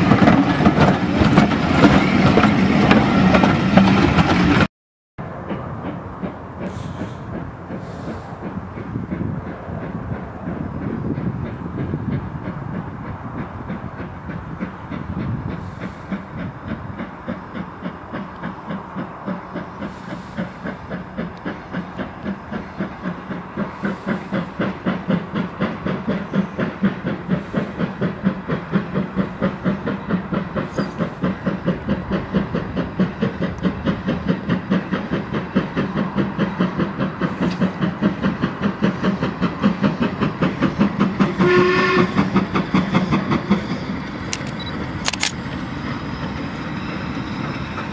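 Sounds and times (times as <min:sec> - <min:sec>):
steam locomotive chuffing: 0:00.0 - 0:47.9
steam whistle blast: 0:41.4 - 0:42.2.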